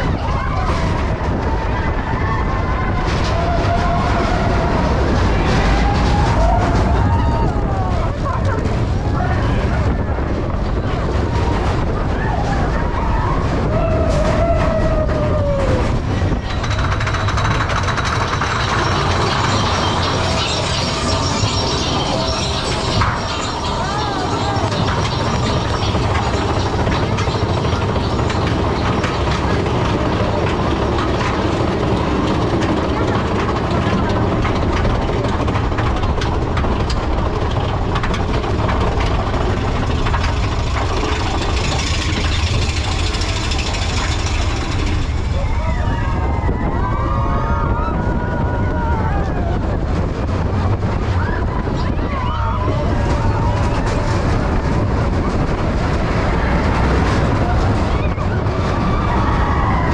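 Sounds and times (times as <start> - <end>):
roller coaster wheels rumbling: 0.0 - 59.9
high whine: 2.2 - 59.9
sharp track clacks: 16.3 - 45.4.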